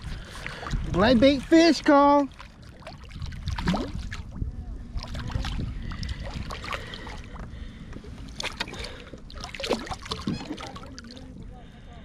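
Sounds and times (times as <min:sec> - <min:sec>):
wind rumble on microphone: 0:00.0 - 0:12.0
fish splashing in water: 0:02.3 - 0:04.4, 0:08.4 - 0:11.2.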